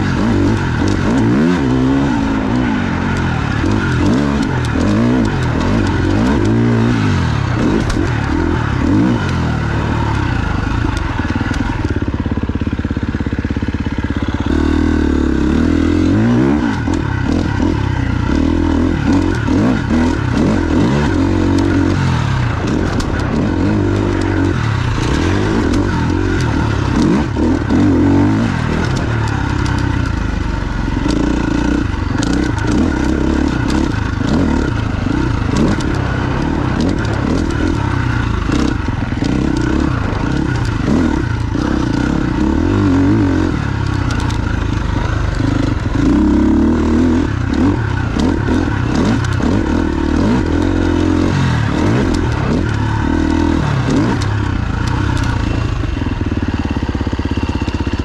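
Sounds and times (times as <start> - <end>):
motorcycle engine revving: 0.0 - 58.0
clicks and clatter: 3.1 - 9.4, 18.3 - 30.4, 31.0 - 55.8.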